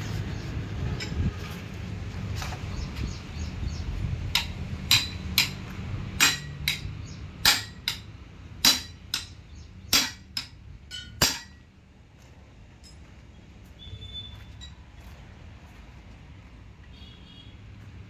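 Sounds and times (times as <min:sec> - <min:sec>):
hammer clanking on steel: 0:04.3 - 0:11.6.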